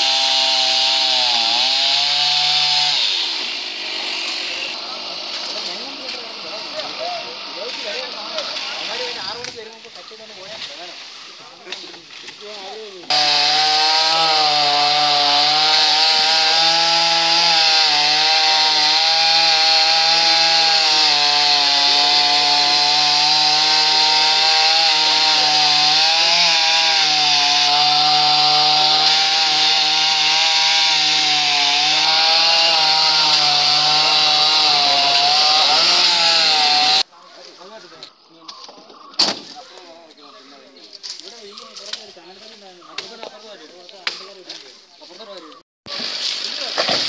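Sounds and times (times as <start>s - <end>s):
chainsaw cutting wood: 0.0s - 9.0s, 13.1s - 37.1s.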